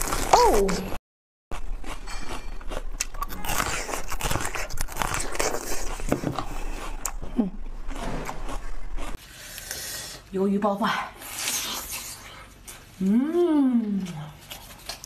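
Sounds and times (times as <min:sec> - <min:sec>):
crunchy biting and chewing: 0:00.0 - 0:09.8, 0:14.4 - 0:15.0.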